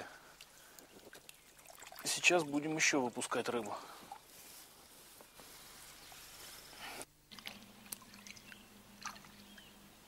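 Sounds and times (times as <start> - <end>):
water dripping: 0.4 - 4.3, 7.3 - 9.7
water sloshing and splashing: 1.0 - 4.6, 7.3 - 9.6.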